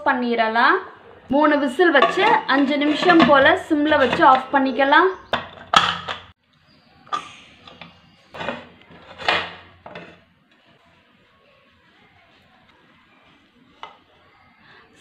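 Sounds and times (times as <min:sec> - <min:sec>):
metal lid clanking on pot: 0:01.9 - 0:04.5.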